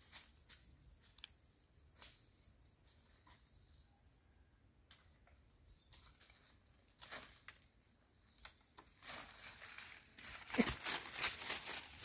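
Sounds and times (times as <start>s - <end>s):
leaves rustling: 6.1s - 7.8s, 8.4s - 12.0s.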